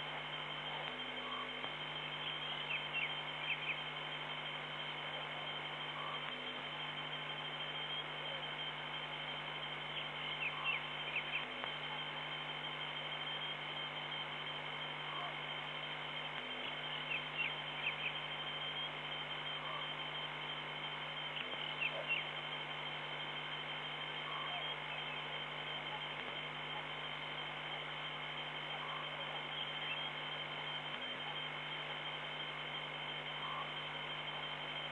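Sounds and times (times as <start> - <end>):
electrical hum and high whine: 0.0 - 34.9.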